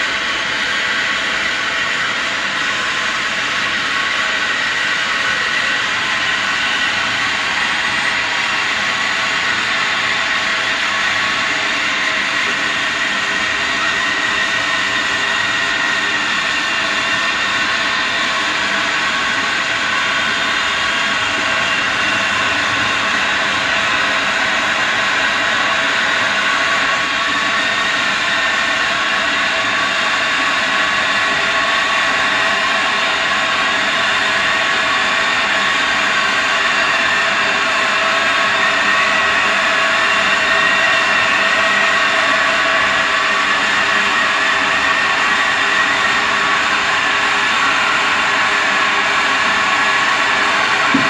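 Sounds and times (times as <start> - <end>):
kettle boiling: 50.6 - 51.0.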